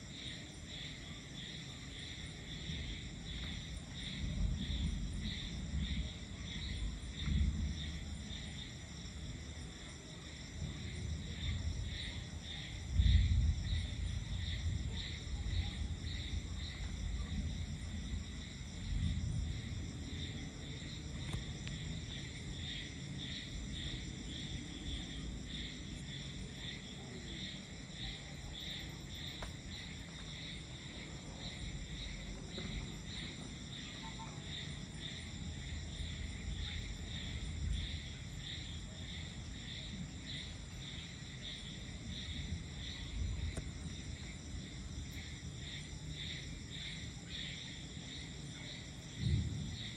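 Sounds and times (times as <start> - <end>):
night insects chirring: 0.0 - 49.9
distant thunder rumbles: 2.5 - 8.7, 10.5 - 26.8, 49.0 - 49.9.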